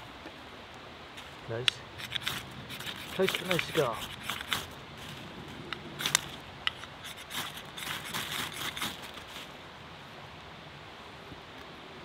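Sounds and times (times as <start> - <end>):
knife scraping a ferro rod: 2.0 - 4.8, 6.0 - 9.5.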